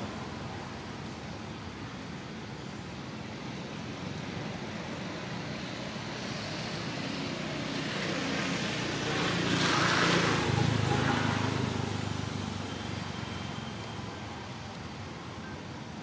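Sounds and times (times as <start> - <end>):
motor vehicle passing by: 5.0 - 13.8.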